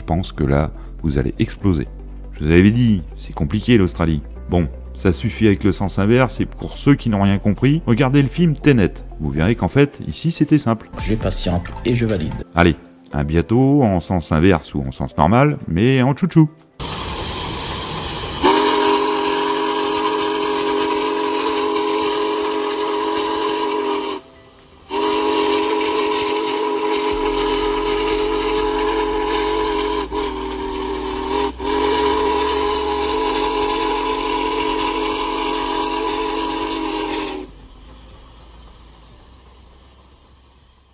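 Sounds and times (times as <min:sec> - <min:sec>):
steam locomotive chime whistle: 0:16.8 - 0:40.9.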